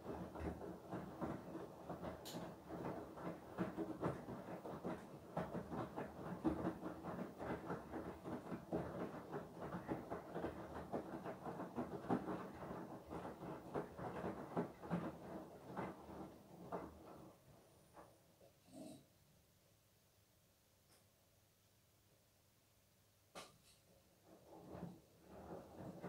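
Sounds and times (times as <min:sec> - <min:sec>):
washing machine sloshing laundry: 0:00.0 - 0:18.0, 0:24.2 - 0:26.0.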